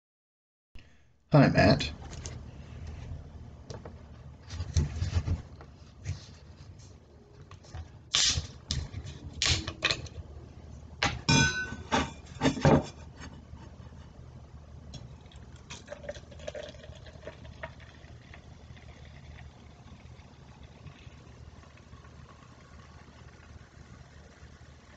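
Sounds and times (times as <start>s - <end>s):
carbonation hissing: 15.0s - 24.9s
soda pouring and fizzing: 15.0s - 24.9s.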